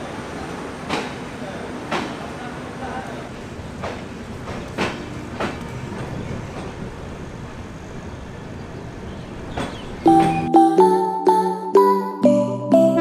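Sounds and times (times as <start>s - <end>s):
train rumbling: 0.0s - 10.5s
train wheels clacking over rail joints: 0.9s - 1.2s, 1.9s - 2.3s, 3.4s - 7.0s, 9.4s - 10.4s
music with pitched notes: 10.1s - 13.0s.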